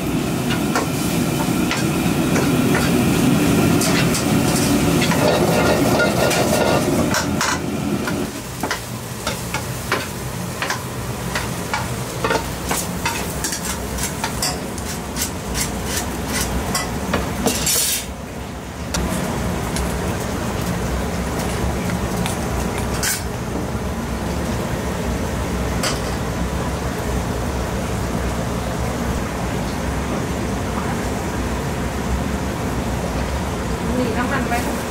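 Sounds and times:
noodles sizzling in wok: 0.0s - 28.6s
gas burner low rumble: 0.0s - 34.9s
metal ladle scraping wok: 3.8s - 7.6s, 17.5s - 18.1s.

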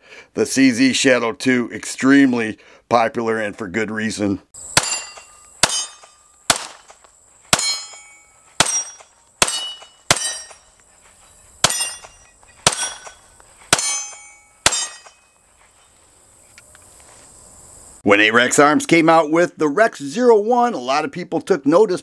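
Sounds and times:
pistol shots: 4.8s - 10.6s, 11.6s - 15.1s.

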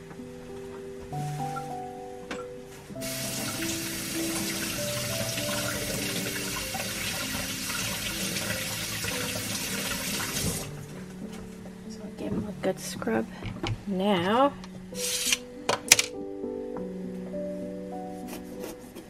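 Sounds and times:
background music: 0.0s - 19.0s
faucet water running: 3.0s - 10.8s.

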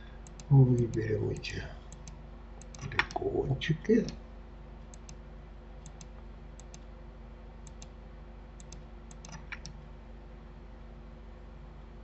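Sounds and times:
steady low hum: 0.0s - 12.0s
computer mouse clicking: 0.2s - 3.2s, 4.9s - 5.2s, 5.8s - 6.9s, 7.6s - 8.0s, 8.6s - 9.8s.

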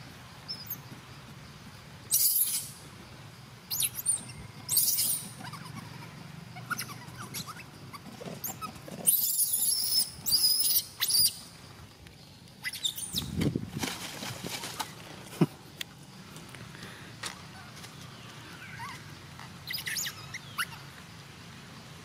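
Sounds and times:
macaques squealing: 2.1s - 2.8s, 3.7s - 11.4s, 12.6s - 13.3s, 18.6s - 20.9s.

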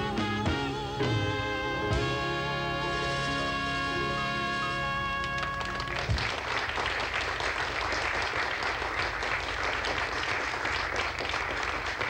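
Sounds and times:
held musical chord: 0.0s - 6.1s
audience applause: 5.2s - 12.0s.

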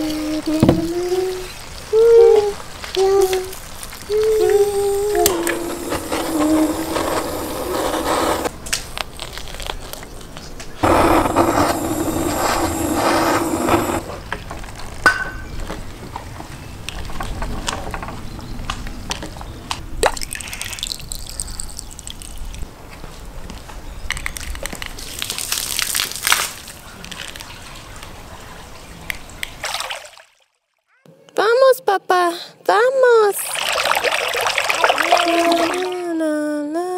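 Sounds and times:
gas torch hissing: 4.3s - 8.5s, 10.8s - 14.1s
water splashing in a pot: 33.4s - 36.0s.

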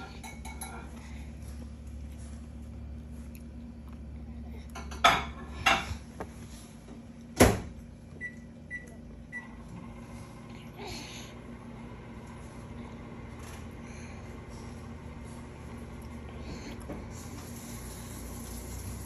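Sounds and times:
dishes and utensils clattering: 0.0s - 1.0s, 4.7s - 6.1s.

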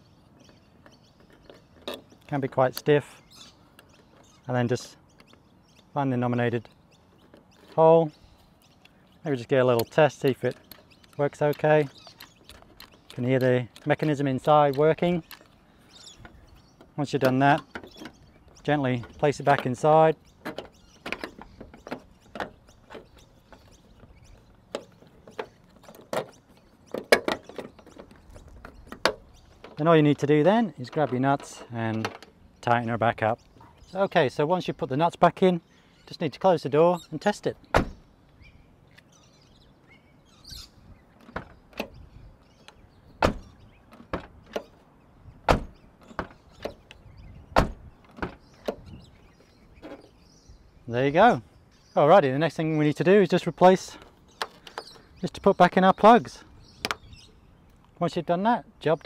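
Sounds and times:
car door latch clicks and clunks: 37.7s - 38.0s, 42.6s - 44.8s, 45.4s - 48.9s.

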